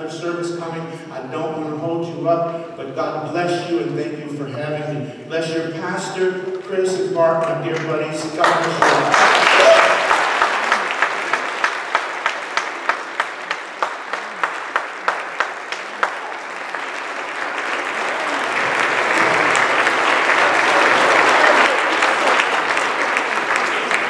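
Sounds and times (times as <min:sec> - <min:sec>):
audience applauding: 0:08.4 - 0:24.0
person clapping loudly: 0:08.4 - 0:24.0.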